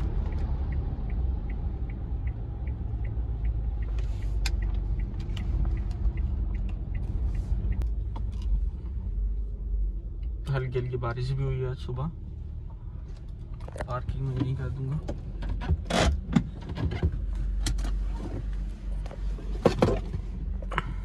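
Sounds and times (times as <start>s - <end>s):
turn signal clicking: 0.0s - 8.6s
engine and tyre rumble: 0.0s - 21.0s.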